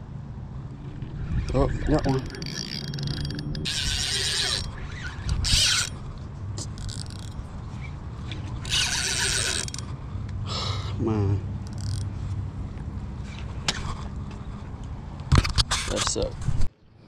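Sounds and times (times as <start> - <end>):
fishing reel whirring: 0.9 - 9.9, 11.6 - 12.1.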